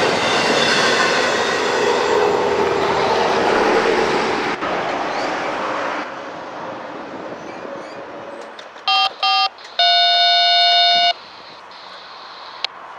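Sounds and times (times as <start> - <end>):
freight train rushing past: 0.0 - 8.4.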